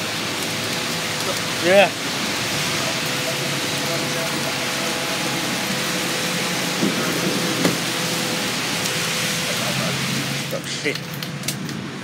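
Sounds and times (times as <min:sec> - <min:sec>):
heavy rain: 0:00.0 - 0:12.0
strong wind: 0:02.0 - 0:10.5.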